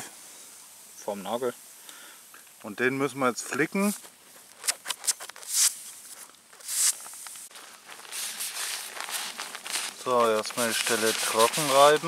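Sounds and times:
nylon mat rustling: 3.7 - 12.0
tissue rubbing on fabric: 3.8 - 12.0.

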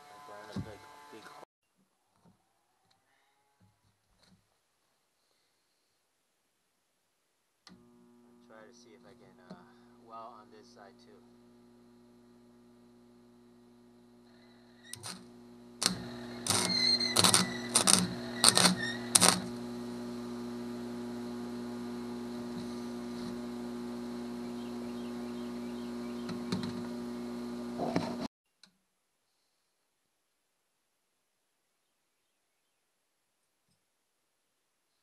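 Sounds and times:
welder humming: 7.7 - 28.3
welding arc crackling: 9.0 - 28.3.

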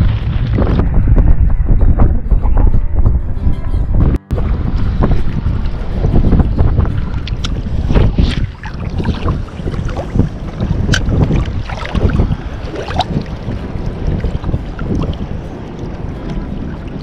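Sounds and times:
wind buffeting microphone: 0.0 - 17.0
sea water sloshing and splashing: 6.6 - 17.0.

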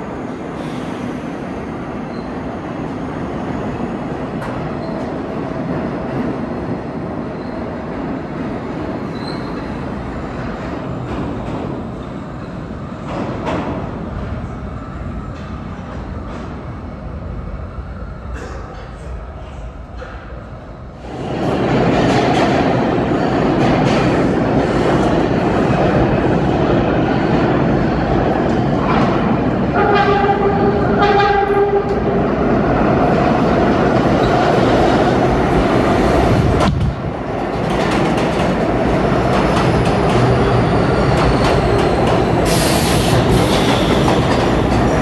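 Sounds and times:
subway train rumbling on rails: 0.0 - 45.0
subway train horn blasts: 28.9 - 32.4.

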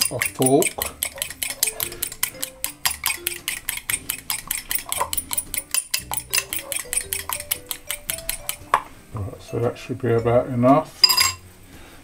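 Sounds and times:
fork whisking egg in bowl: 0.0 - 8.8.

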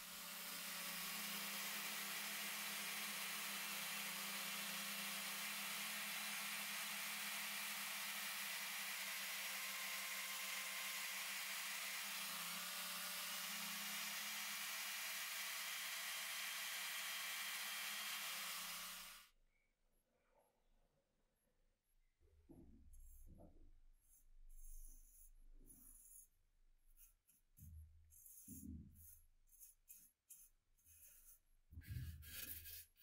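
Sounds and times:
power tool polishing whir: 0.0 - 19.2.

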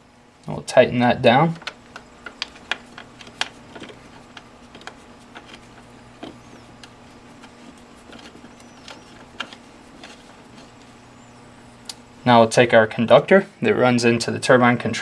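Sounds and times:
steady low hum: 0.0 - 15.0
screwdriver clicks and scrapes: 1.6 - 10.9.

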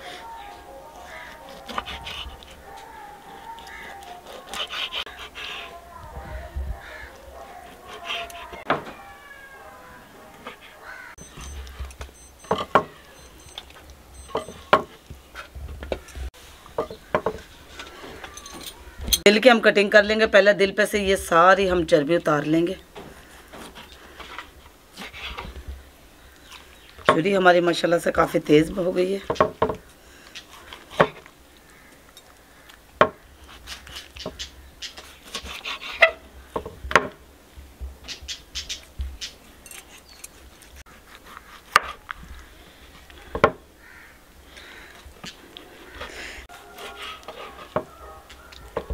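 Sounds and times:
knife scraping and slicing: 33.4 - 36.2.

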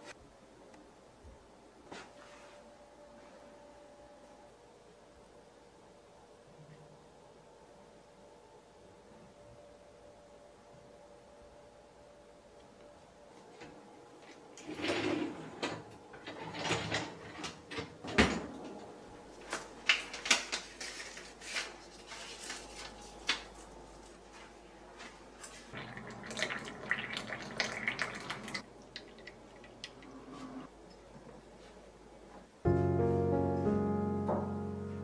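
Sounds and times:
pouring water: 25.7 - 30.3.

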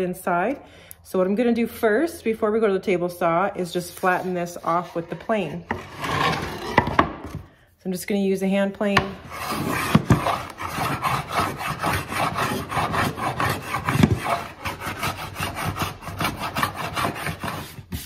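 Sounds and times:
hand plane shaving wood: 5.7 - 7.0, 9.0 - 18.0.

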